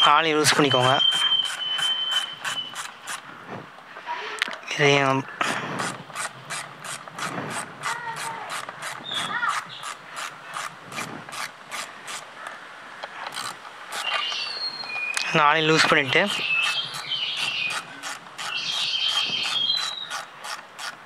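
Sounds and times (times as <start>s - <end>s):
ratchet wrench clicking: 5.8s - 9.0s, 13.3s - 14.2s.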